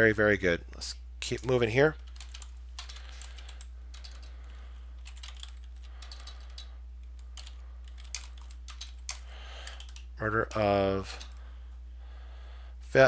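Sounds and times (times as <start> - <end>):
low electrical hum: 0.0 - 13.0
keyboard typing clicks: 2.0 - 10.1.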